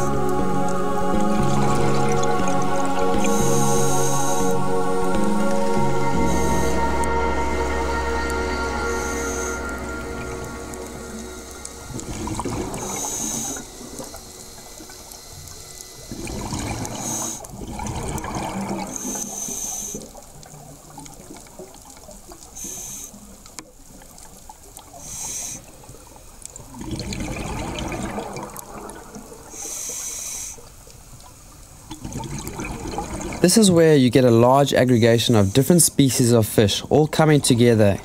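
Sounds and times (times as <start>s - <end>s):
exhaled bubbles gurgling: 0.0s - 35.7s
regulator inhalation hiss: 3.2s - 17.6s, 18.9s - 20.2s, 22.6s - 23.4s, 24.9s - 25.8s, 29.5s - 30.8s.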